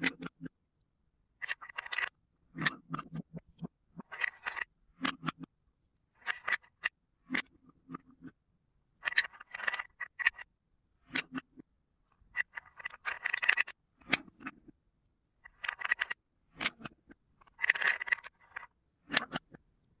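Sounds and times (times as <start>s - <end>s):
toy blocks clattering: 1.4s - 2.1s, 4.1s - 4.7s, 6.2s - 6.9s, 9.0s - 10.4s, 12.4s - 13.8s, 15.4s - 16.8s, 17.5s - 19.3s.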